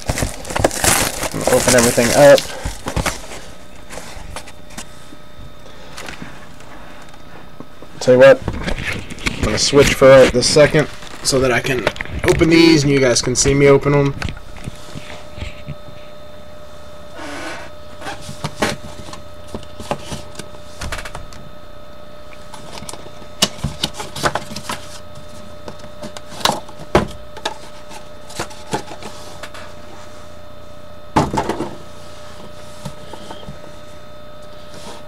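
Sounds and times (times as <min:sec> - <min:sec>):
plastic wrap crackling: 0:00.0 - 0:03.4
plastic wrap and cardboard rustling: 0:00.0 - 0:05.0, 0:08.4 - 0:12.6.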